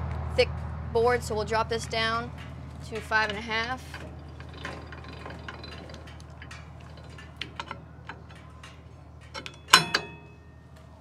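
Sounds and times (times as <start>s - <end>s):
metal clank with ringing tone: 2.2s - 10.8s.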